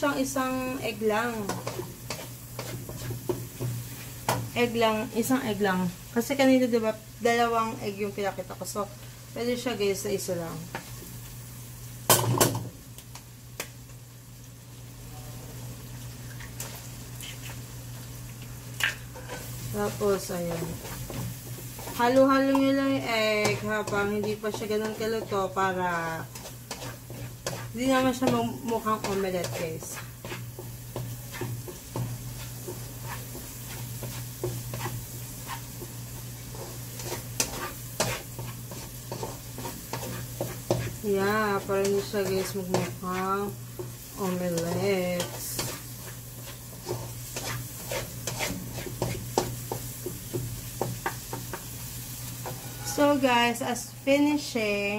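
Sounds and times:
pan sizzling: 0.0 - 54.9
egg cracking and splatting: 18.3 - 19.1.

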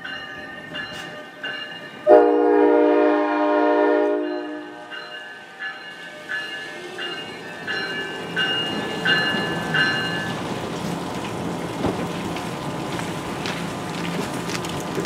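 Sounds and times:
train warning bell ringing: 0.0 - 10.6
low hum of standing train: 0.0 - 15.0
rain hissing: 8.1 - 15.0.

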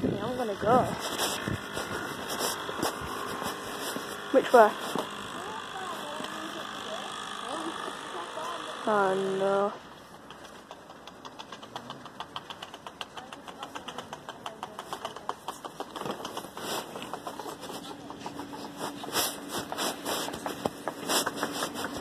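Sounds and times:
dog paws ticking: 0.2 - 6.5, 8.9 - 22.0
boot footsteps on asphalt: 0.9 - 5.2, 16.4 - 22.0.

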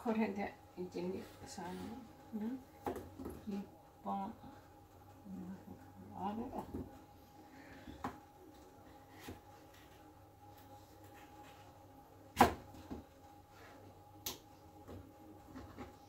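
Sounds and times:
faint steady hum: 0.0 - 16.0.

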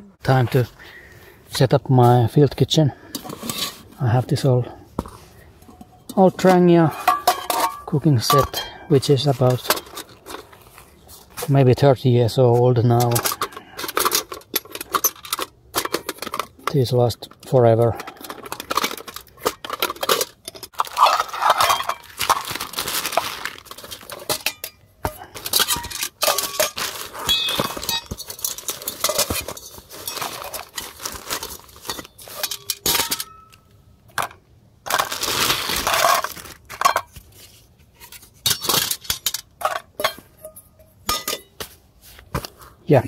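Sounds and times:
metal pots clinking: 5.6 - 10.4, 12.9 - 35.2, 35.8 - 37.2, 38.0 - 41.7
plastic bag crinkling: 18.3 - 24.3, 26.2 - 32.4, 34.9 - 36.7.

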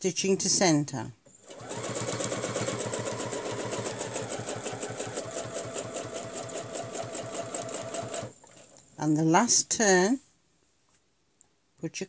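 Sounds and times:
sewing machine stitching: 1.3 - 8.8.

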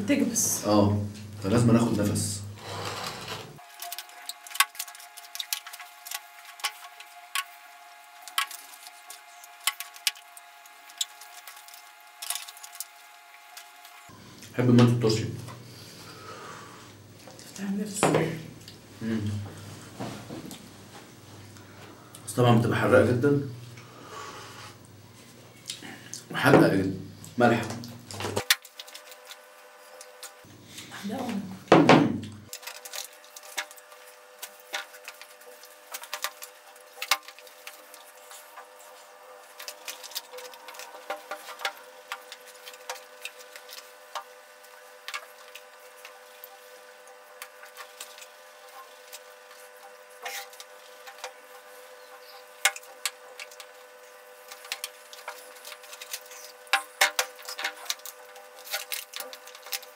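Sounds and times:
faint steady hum: 0.0 - 59.9
fork scraping foil tray: 2.6 - 7.0, 32.6 - 53.8, 54.4 - 59.9.

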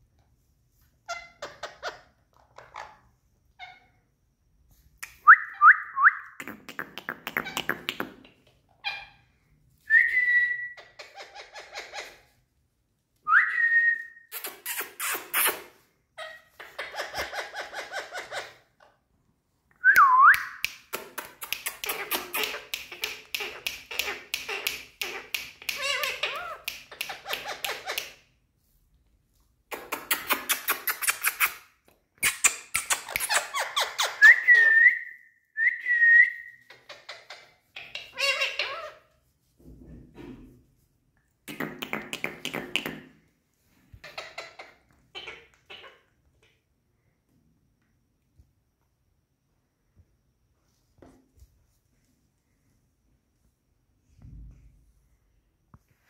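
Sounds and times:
parakeet rattling chatter: 21.4 - 28.0.

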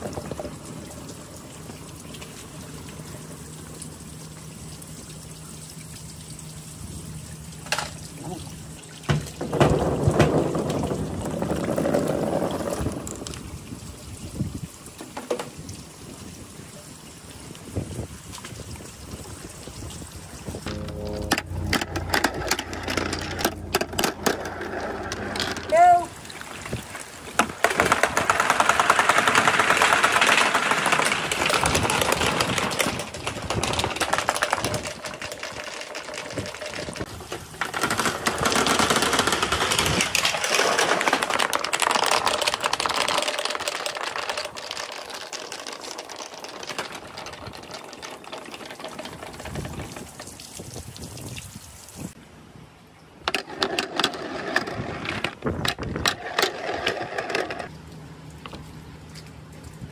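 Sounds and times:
balls rattling down marble run: 7.6 - 8.0, 9.1 - 13.4, 20.5 - 50.5, 53.3 - 57.7.

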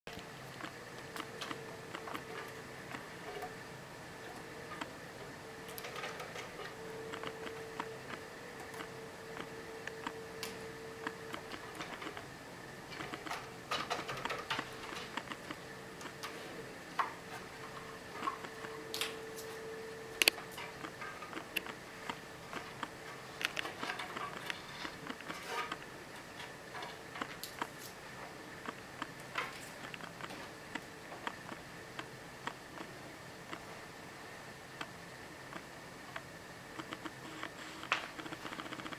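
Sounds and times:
faint steady hum: 0.1 - 38.9
cat paws clicking and tapping: 12.9 - 16.4.

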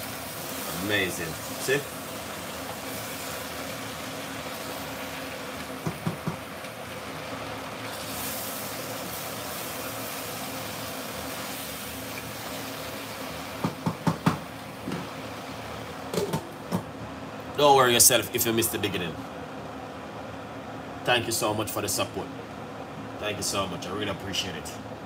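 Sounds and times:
curry sizzling in pot: 0.0 - 16.1
wooden spoon knocking pot: 5.8 - 6.4, 13.6 - 14.4.

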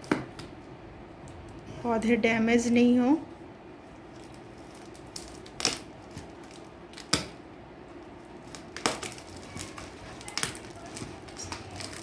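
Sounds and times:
tape and cardboard cracking: 4.1 - 7.4, 8.2 - 12.0.

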